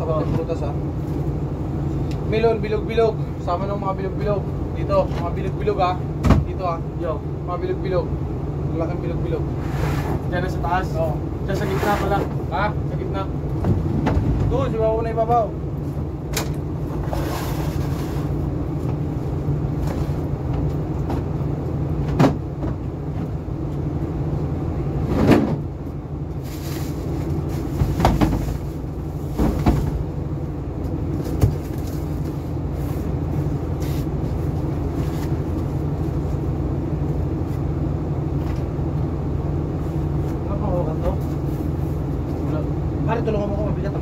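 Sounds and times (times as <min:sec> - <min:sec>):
low machinery drone: 0:00.0 - 0:44.0
crates knocking and thudding: 0:22.0 - 0:22.8, 0:25.1 - 0:25.7, 0:27.6 - 0:30.2.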